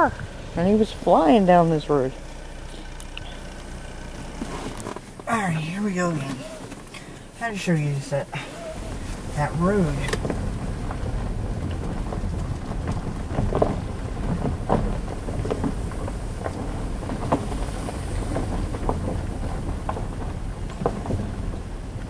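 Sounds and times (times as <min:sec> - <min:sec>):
vehicle rumbling on dirt road: 0:00.0 - 0:22.0
knocks and rattles: 0:08.7 - 0:22.0.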